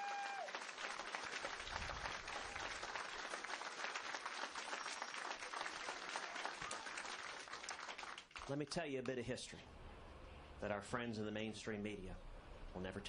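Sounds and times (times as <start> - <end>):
audience applause: 0.0 - 8.5.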